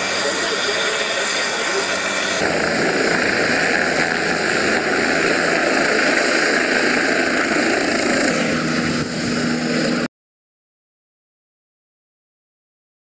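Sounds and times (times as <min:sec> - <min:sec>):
helicopter rotor and engine: 0:00.0 - 0:10.1.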